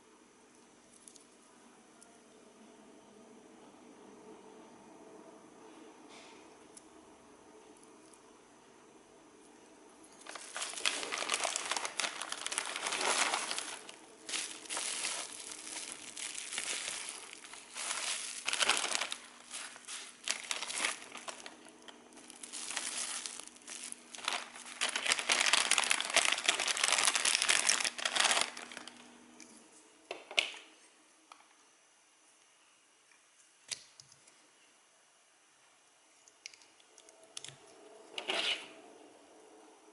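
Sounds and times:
plastic bags crinkling: 10.2s - 29.0s.

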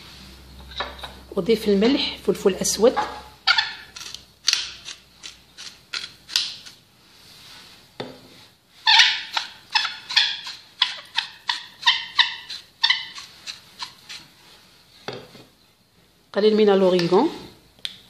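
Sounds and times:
pepper mill grinding: 3.0s - 6.8s, 9.0s - 14.3s.

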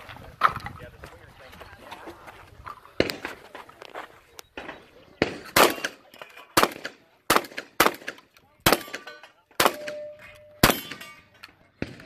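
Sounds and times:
shotgun shots: 4.6s - 11.2s, 11.8s - 12.0s
steel targets ringing: 8.8s - 11.4s.

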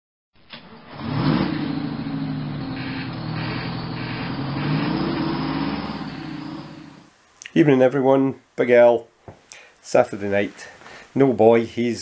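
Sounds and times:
lorry engine revving: 0.5s - 7.1s.

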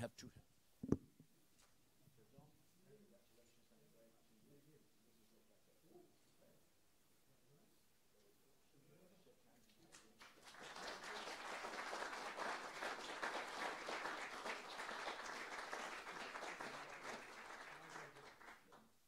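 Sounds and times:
audience applauding: 10.2s - 18.8s.

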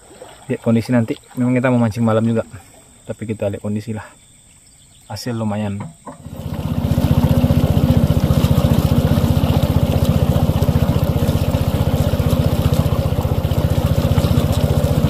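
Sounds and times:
small boat engine running: 6.0s - 15.0s.

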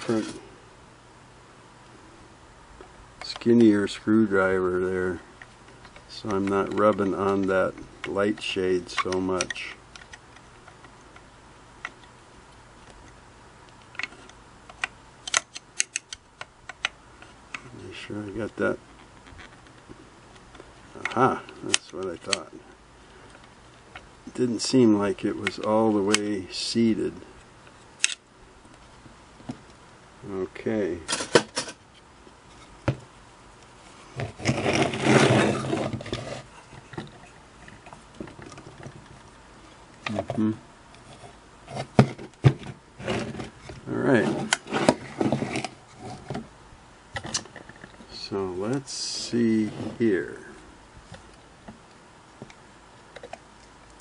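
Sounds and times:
scraping rustling handling noise: 0.0s - 0.5s, 33.7s - 46.5s, 47.2s - 51.4s.

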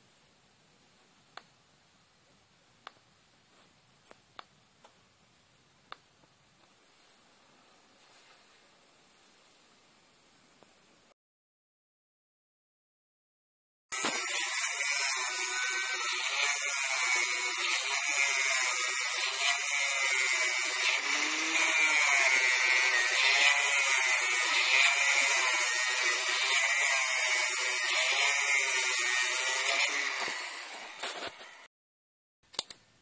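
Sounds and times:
angle grinder cutting metal: 13.9s - 31.7s.

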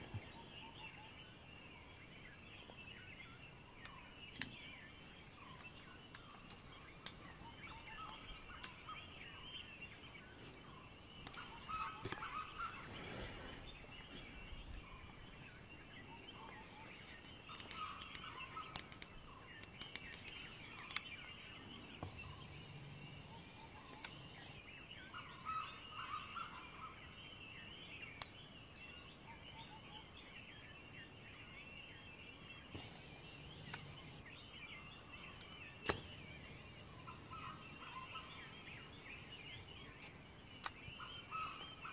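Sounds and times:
birds chirping: 0.0s - 41.9s
sharp clicks: 32.8s - 34.1s.

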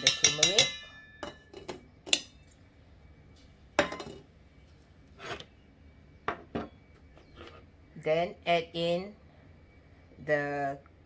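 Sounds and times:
metal spoon clinking on bowl: 0.0s - 2.4s.

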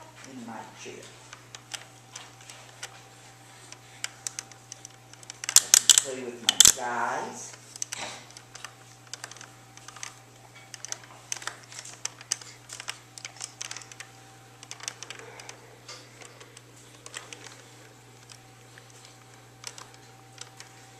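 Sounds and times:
steady low hum: 0.0s - 20.9s
plastic toys clicking: 4.0s - 6.8s, 7.7s - 20.8s.

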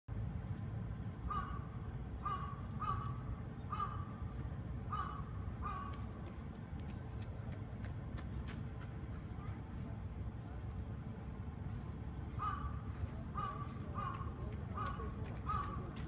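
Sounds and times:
crow cawing: 1.2s - 4.2s, 4.9s - 6.0s, 12.3s - 16.0s.

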